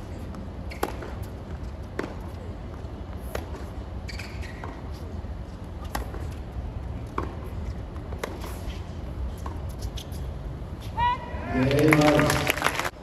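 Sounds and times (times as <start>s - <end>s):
low arena hum: 0.0s - 13.0s
rackets hitting tennis balls: 0.3s - 10.0s.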